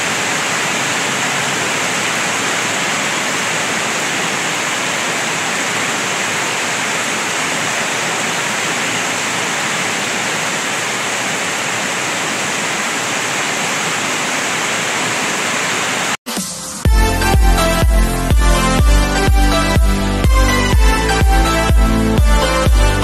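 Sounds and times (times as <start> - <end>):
heavy rain pouring on street and roofs: 0.0 - 16.2.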